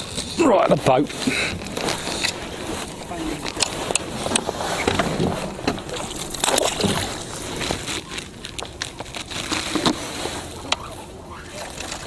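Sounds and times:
water splashing against net: 4.6s - 10.3s, 11.4s - 12.0s.

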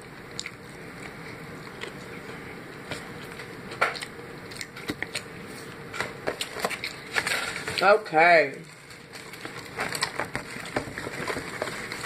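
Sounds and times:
person chewing chicken: 0.0s - 7.6s.

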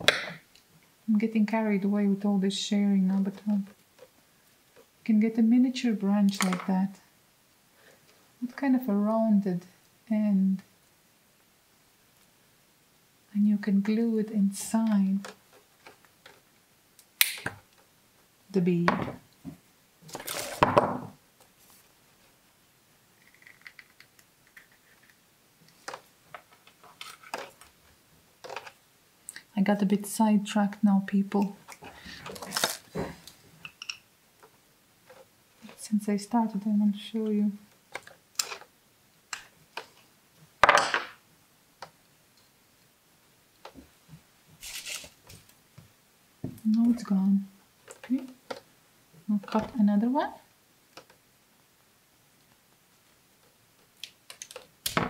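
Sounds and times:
rustling: 19.5s - 20.7s, 31.4s - 33.8s, 43.6s - 45.6s.

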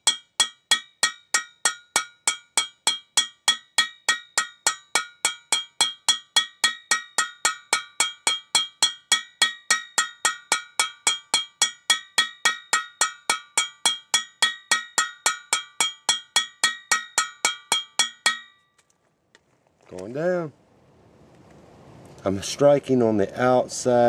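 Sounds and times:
hammer striking steel: 0.0s - 18.7s.

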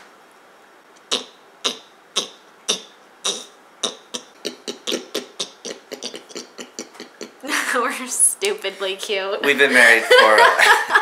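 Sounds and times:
people imitating pig grunts: 3.2s - 7.7s.

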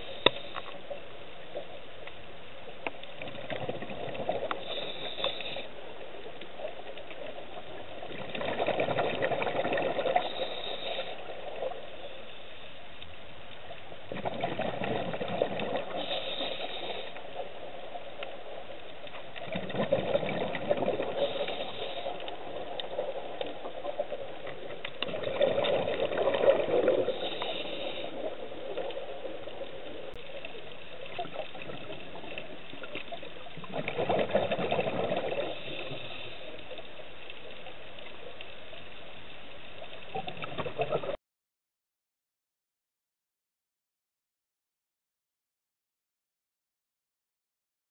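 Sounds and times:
exhaled bubbles underwater: 3.2s - 5.6s, 6.2s - 11.9s, 14.1s - 36.8s, 40.0s - 41.2s
regulator hiss: 4.6s - 5.9s, 10.2s - 12.8s, 15.9s - 17.4s, 21.1s - 22.6s, 27.0s - 28.3s.

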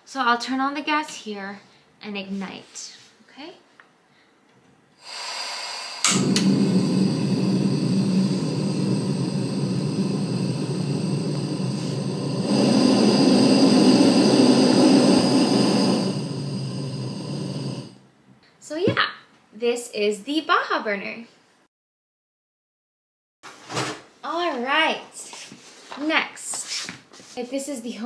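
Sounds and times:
burner flame rushing hiss: 5.0s - 18.0s
gas valve hiss: 5.0s - 18.0s.

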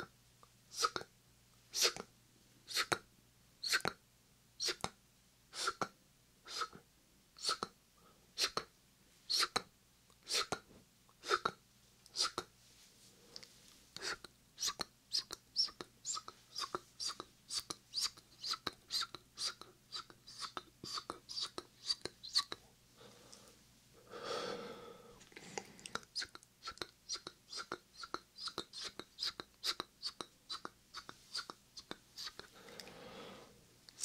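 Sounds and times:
whispered mouth sounds: 0.7s - 1.1s, 2.7s - 3.0s, 7.4s - 7.8s, 9.3s - 12.5s, 13.4s - 22.6s, 25.6s - 32.5s.

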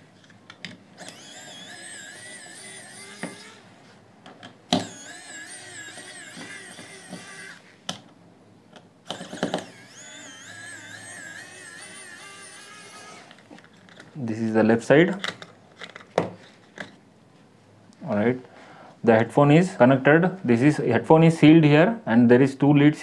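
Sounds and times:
electric screwdriver motor whining: 1.0s - 3.7s, 4.7s - 7.7s, 9.0s - 14.0s.

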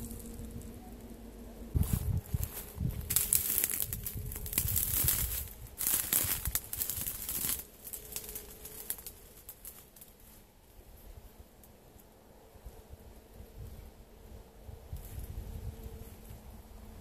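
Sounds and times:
footsteps through dry grass: 0.0s - 0.8s, 1.7s - 10.5s.

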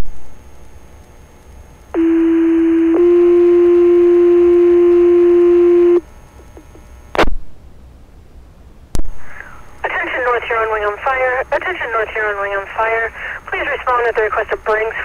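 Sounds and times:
two-tone radio page tone: 2.0s - 6.0s.

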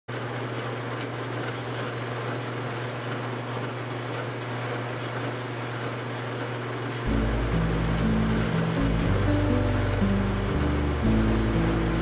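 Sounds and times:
machinery low hum: 7.0s - 12.0s.

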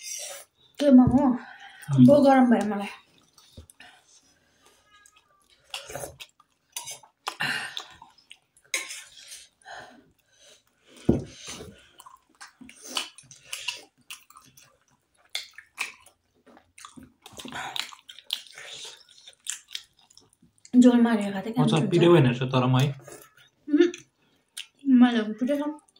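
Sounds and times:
wet slurping and chewing: 1.6s - 20.8s.

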